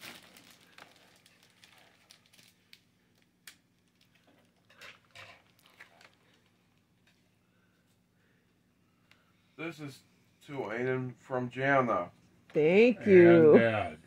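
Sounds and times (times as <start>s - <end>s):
faint rustling of cellophane: 0.0s - 8.1s.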